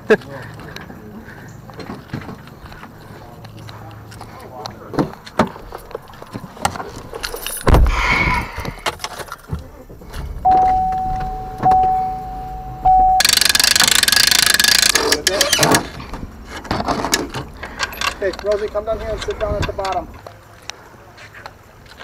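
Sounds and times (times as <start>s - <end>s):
keys and door handle clicks: 5.3s - 7.8s, 10.2s - 15.8s
vehicle chime tone: 10.4s - 13.8s
winch ratchet clicking: 13.2s - 15.8s.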